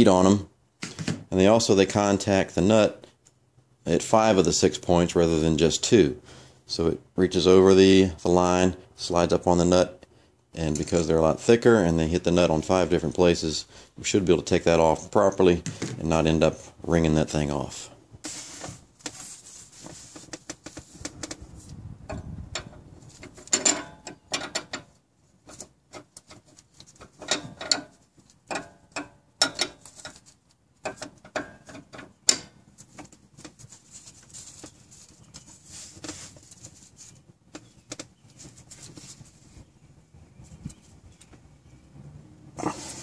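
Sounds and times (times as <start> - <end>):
wrench clinking on metal nut: 22.1 - 25.0, 27.2 - 30.2.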